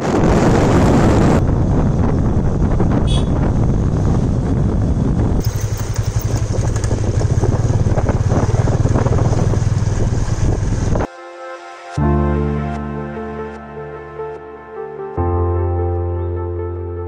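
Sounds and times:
motorcycle engine hum: 0.0 - 11.1
wind rushing over microphone: 0.0 - 11.1.

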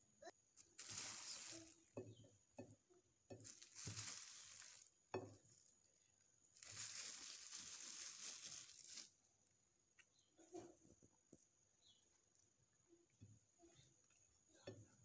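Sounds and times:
soft rustling: 0.6 - 1.9, 3.4 - 4.9, 6.6 - 9.2.

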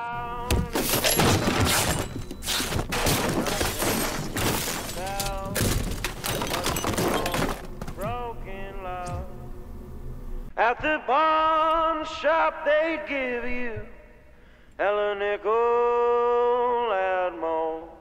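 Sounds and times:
things crashing and breaking: 0.4 - 8.3.

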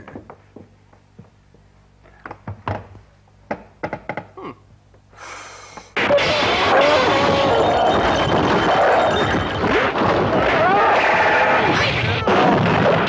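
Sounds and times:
loud burst of fighting noise: 6.0 - 13.0.

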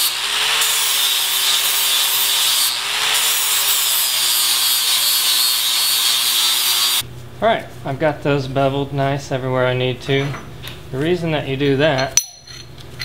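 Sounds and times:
angle grinder grinding steel: 0.0 - 7.0.

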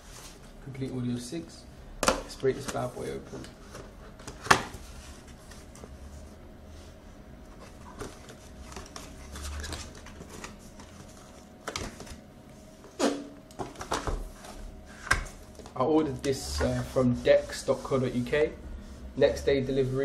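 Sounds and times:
cardboard packaging rustling: 7.5 - 12.2.

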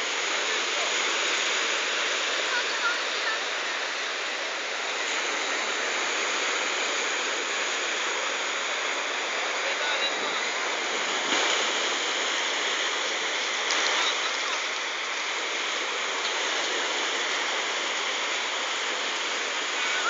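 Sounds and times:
faint voices: 0.0 - 5.9, 9.5 - 10.7, 13.8 - 14.9
waves washing on pebble beach: 0.0 - 20.0.

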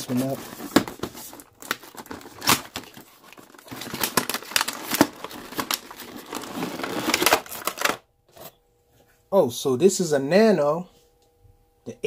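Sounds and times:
cardboard box being opened: 0.0 - 7.9.

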